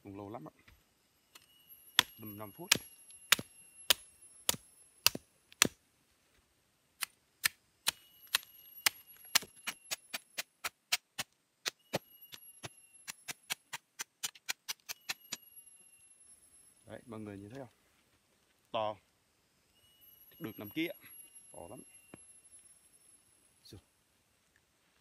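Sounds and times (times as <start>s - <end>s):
machete chopping fibrous root: 2.0s - 5.8s.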